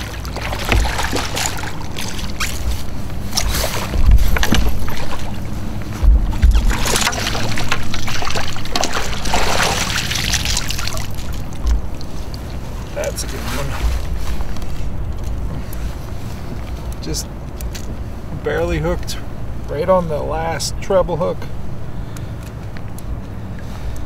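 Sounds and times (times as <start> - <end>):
low thumps from gear: 0.0 - 9.4, 11.5 - 15.9
water splashing and sloshing: 0.0 - 19.0.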